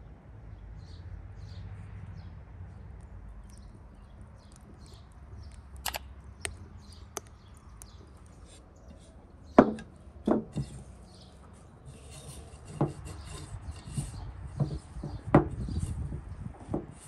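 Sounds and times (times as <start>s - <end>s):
dull thumps: 9.6s - 10.8s, 12.7s - 15.9s.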